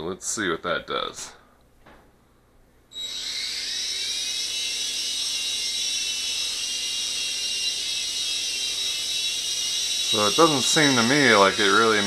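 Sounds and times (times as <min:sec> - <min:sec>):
toy helicopter motor whine: 0:02.9 - 0:12.0.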